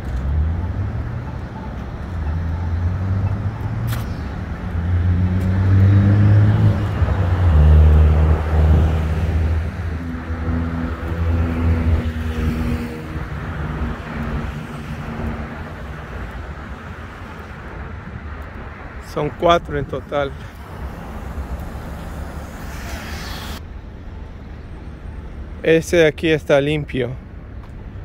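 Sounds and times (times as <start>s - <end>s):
sharp click: 3.8s - 4.4s.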